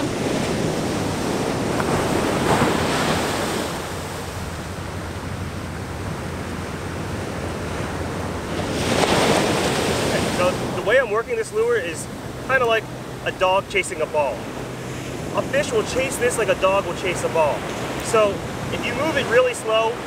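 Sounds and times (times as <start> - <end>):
wind on microphone: 0.0 - 10.9
ocean surf on beach: 0.0 - 20.0.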